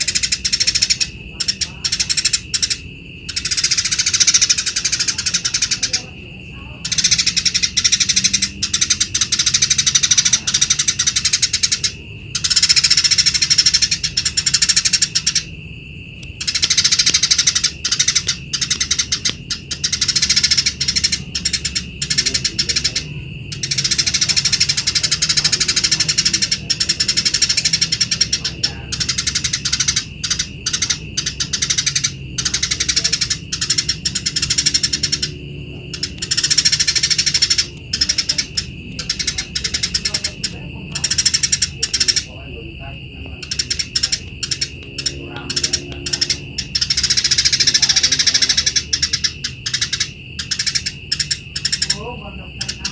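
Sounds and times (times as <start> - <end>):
sparrow chattering song: 0.0 - 52.9
steady high tone: 0.0 - 52.9.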